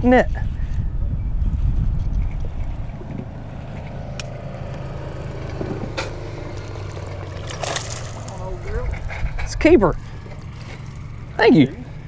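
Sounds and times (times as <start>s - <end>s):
steady low hum: 0.0s - 12.0s
fish splashing in net: 7.2s - 8.4s.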